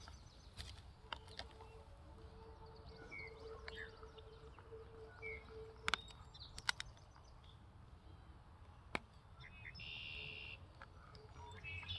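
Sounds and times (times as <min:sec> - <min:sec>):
puppy gnawing a stick: 0:00.0 - 0:02.4, 0:03.1 - 0:07.6
faint birdsong: 0:00.0 - 0:11.9.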